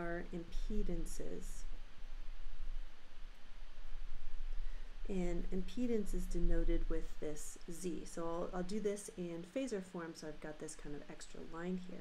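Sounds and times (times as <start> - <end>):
low hum: 0.0 - 9.4.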